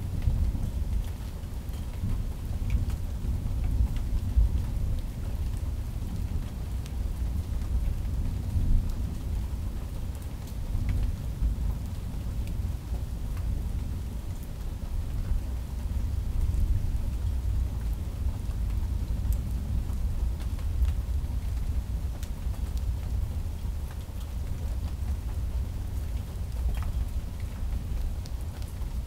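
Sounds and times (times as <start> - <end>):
rain falling: 0.0 - 29.0
raindrop ticks: 0.2 - 13.6, 14.3 - 29.0.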